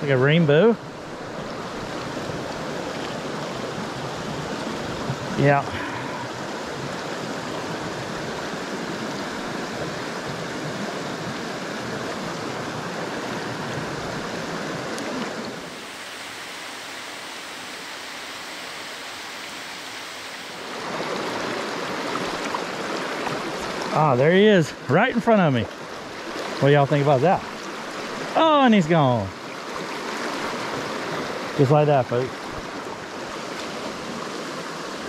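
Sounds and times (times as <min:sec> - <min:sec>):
creek rushing over stones: 0:00.0 - 0:35.0.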